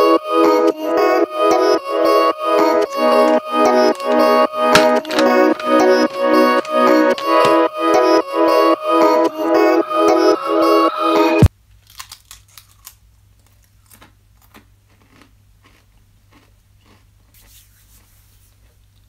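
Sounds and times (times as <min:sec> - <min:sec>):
background music: 0:00.0 - 0:11.5
person crunching and chewing crisp: 0:02.9 - 0:07.7, 0:11.7 - 0:19.0.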